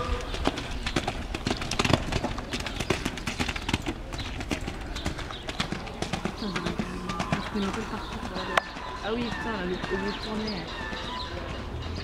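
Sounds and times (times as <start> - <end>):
horse hooves thudding on sand: 0.0 - 12.0.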